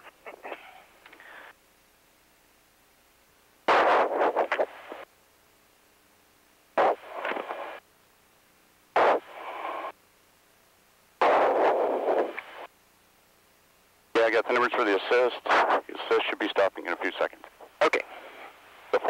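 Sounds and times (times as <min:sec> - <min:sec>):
low steady hiss: 0:00.0 - 0:19.0
radio static bursts: 0:03.7 - 0:05.1, 0:06.8 - 0:07.8, 0:08.9 - 0:10.0, 0:11.2 - 0:12.7, 0:14.2 - 0:19.0.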